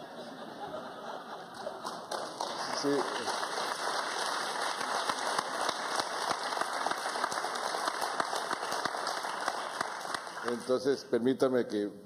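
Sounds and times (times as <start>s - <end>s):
audience applauding: 1.4s - 10.9s.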